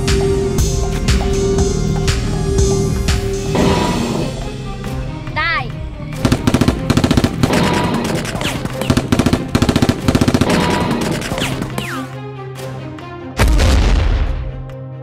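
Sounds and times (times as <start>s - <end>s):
background music: 0.0s - 15.0s
automatic gunfire: 6.2s - 12.0s.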